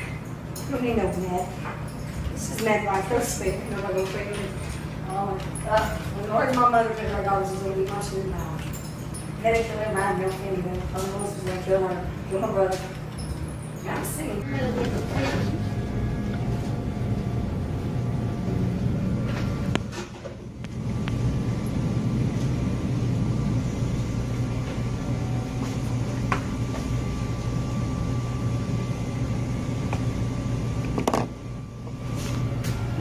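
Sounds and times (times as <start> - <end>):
low machinery hum: 0.0 - 33.0.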